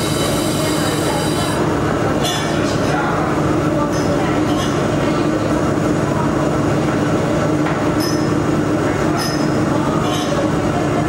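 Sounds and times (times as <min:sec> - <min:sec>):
welding machine running with low hum: 0:00.0 - 0:02.2.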